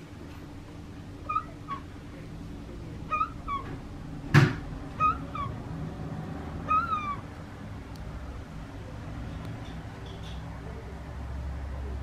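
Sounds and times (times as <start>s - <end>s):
gulls mewing calls: 1.2s - 2.0s, 3.0s - 3.8s, 4.9s - 5.7s, 6.6s - 7.4s.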